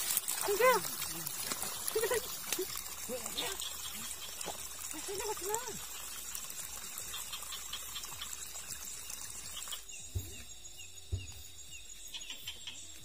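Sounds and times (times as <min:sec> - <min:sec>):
night insects chorus: 0:00.0 - 0:13.0
dull knocks: 0:10.1 - 0:11.6.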